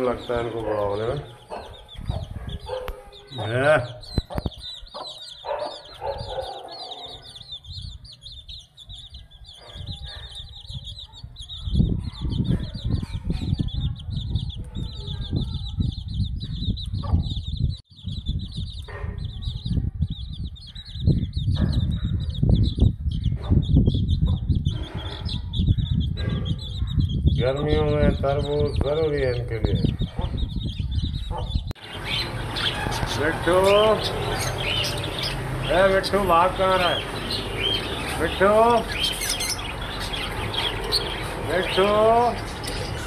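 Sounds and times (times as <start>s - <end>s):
low rumbling on microphone: 0.0s - 3.1s, 7.5s - 43.0s
hen clucking: 0.0s - 7.4s
chicks cheeping: 0.0s - 43.0s.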